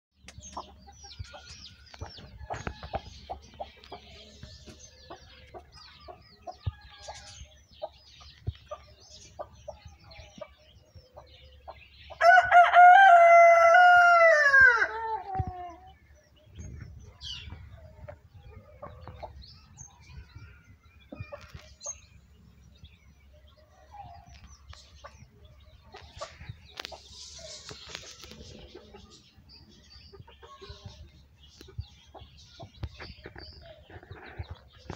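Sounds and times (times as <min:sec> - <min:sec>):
rooster crowing: 0:12.2 - 0:15.2.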